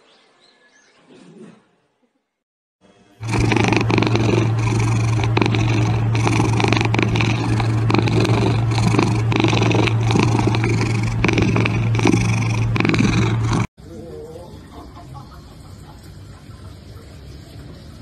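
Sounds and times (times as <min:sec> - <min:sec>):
cat purring loudly: 0:03.2 - 0:13.7.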